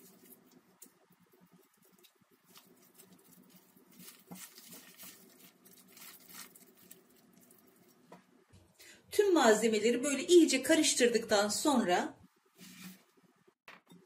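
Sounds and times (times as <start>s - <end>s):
hand kneading wet dough: 0.0s - 8.7s.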